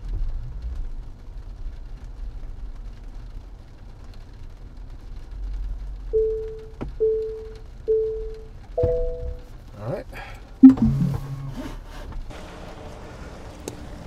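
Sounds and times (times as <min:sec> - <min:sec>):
car rolling on wet pavement: 0:00.0 - 0:14.0
parking warning beeps: 0:06.2 - 0:09.5, 0:10.6 - 0:11.6.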